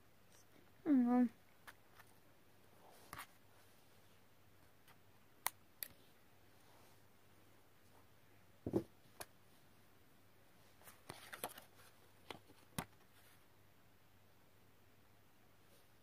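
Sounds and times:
soft thump on cloth table: 8.6 - 8.9
paper rustling: 10.8 - 13.3.

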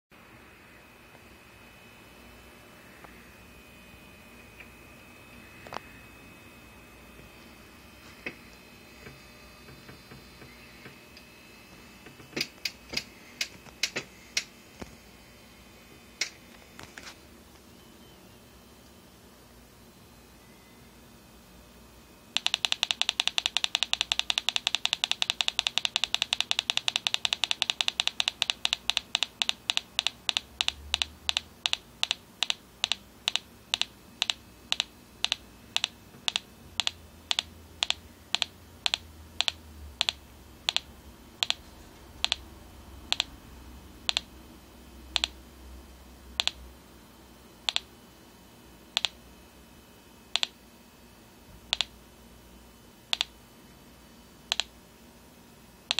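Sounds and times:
small loudspeaker clicking: 22.4 - 41.6, 42.2 - 42.5, 43.1 - 43.4, 44.0 - 44.3, 45.2 - 45.4, 46.4 - 46.6, 47.7 - 47.9, 49.0 - 49.2, 51.7 - 51.9, 53.1 - 53.3, 54.5 - 54.7.

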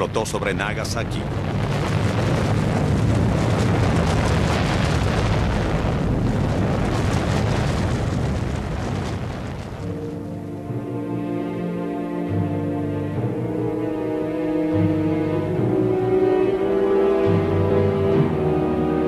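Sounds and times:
deep explosion rumble: 0.0 - 10.8.

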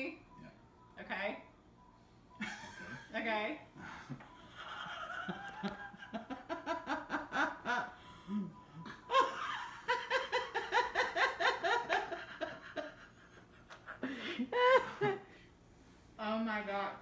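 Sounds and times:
people laughing: 3.9 - 15.2.

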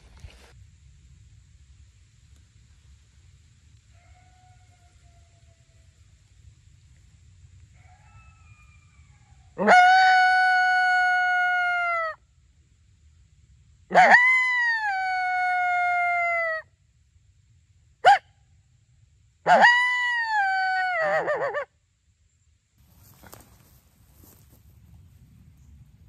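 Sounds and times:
coyote call howls: 3.9 - 5.9, 7.8 - 12.2, 13.9 - 16.7, 18.0 - 18.3, 19.5 - 21.7.

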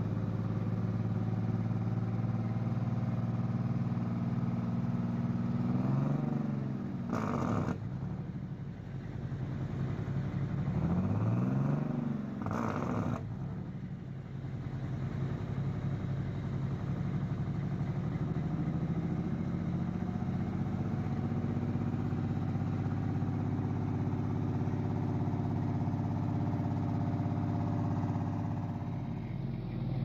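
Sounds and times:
bus diesel engine idling: 7.8 - 10.8, 13.2 - 30.0.

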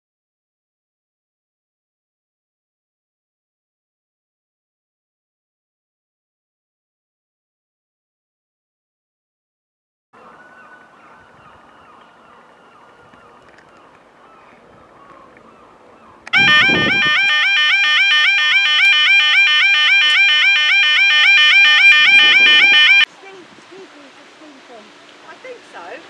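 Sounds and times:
level-crossing alarm two-tone warble: 16.4 - 23.1.

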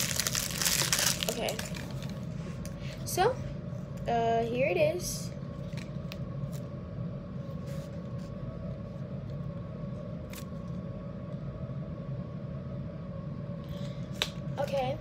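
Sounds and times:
plastic packaging crinkling: 0.0 - 2.2
low room hum: 0.0 - 15.0.

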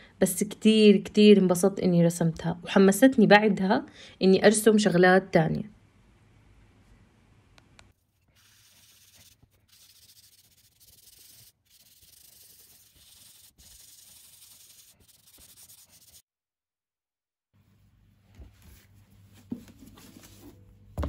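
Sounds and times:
pencil scratching on paper: 8.1 - 16.2.

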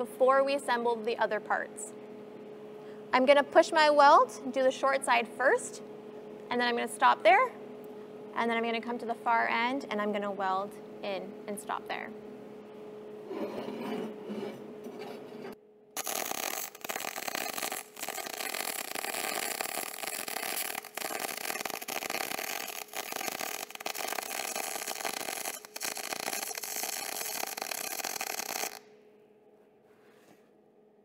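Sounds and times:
metal pieces scraping on table: 13.3 - 15.6
welding arc crackling hiss: 16.0 - 28.9.

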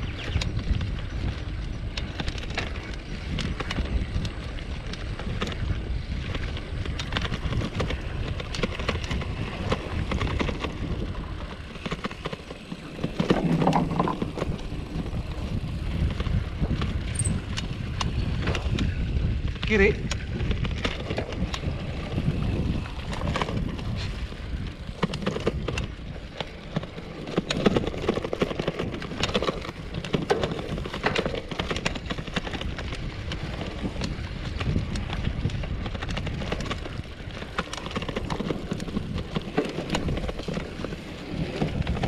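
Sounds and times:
bike rattling over rough dirt: 0.0 - 42.0
low wind rumble on microphone: 0.0 - 42.0.

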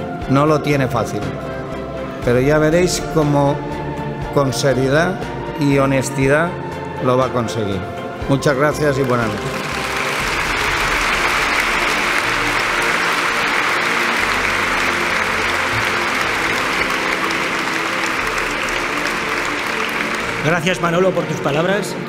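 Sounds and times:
crowd applauding: 8.6 - 21.9.

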